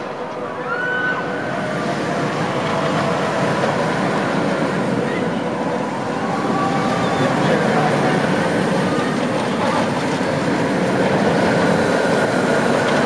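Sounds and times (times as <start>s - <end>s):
roller coaster rumbling on track: 0.0s - 13.0s.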